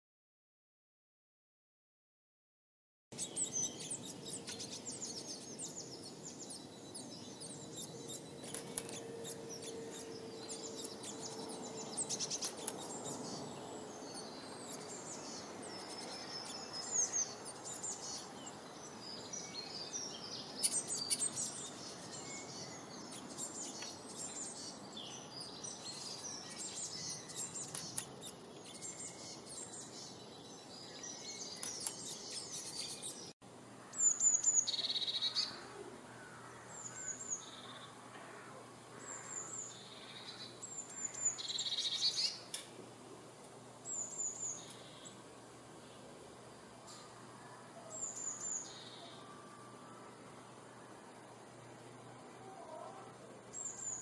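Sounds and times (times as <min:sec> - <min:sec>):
songbirds chirping and singing: 0:03.1 - 0:54.0.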